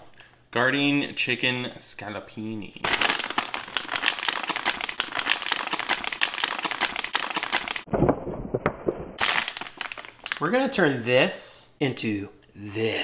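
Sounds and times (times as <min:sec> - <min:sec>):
plastic bag crinkling: 0:02.8 - 0:07.9, 0:09.2 - 0:10.8.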